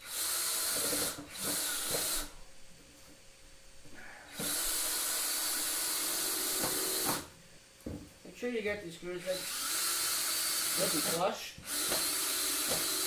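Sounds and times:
cordless drill driving screws into wood: 0.0 - 2.3, 4.4 - 7.3, 9.3 - 13.0
steady motor hum: 0.0 - 13.0.

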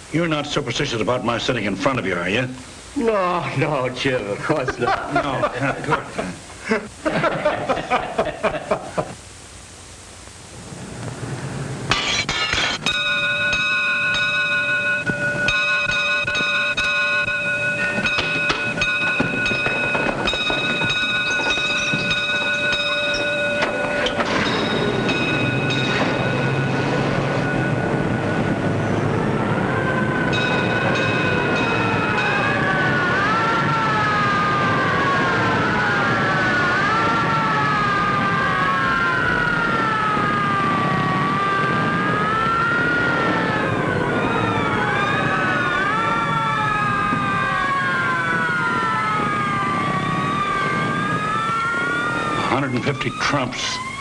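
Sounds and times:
alarm bell ringing: 12.7 - 33.2
fire engine sirens wailing: 12.9 - 54.0.

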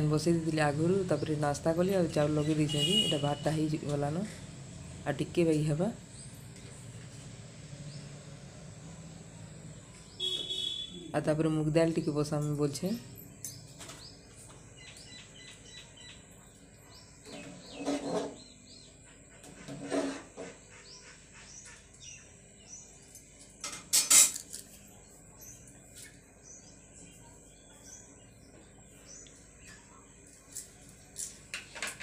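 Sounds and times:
small birds chirping: 9.0 - 19.8, 20.4 - 23.6, 24.6 - 32.0
cookware clattering: 23.6 - 24.5.

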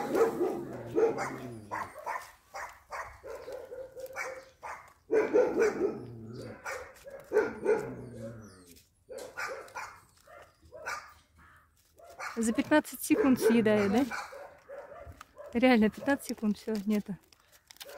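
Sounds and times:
dog whining: 0.0 - 2.2, 7.4 - 9.6
dog barking: 0.0 - 8.4, 9.1 - 11.2, 12.0 - 16.2.

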